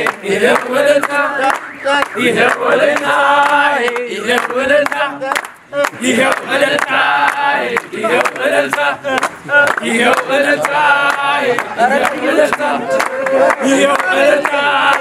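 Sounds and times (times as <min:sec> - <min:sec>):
hand-clapping: 0:00.0 - 0:15.0
men singing and chanting: 0:00.0 - 0:15.0.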